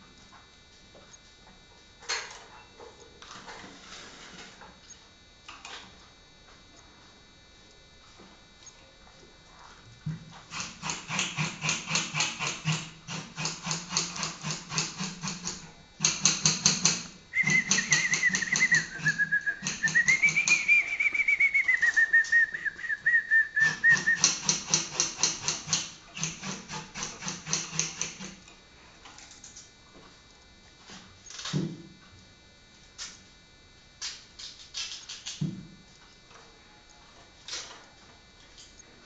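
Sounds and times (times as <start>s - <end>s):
canary singing: 17.4s - 24.3s.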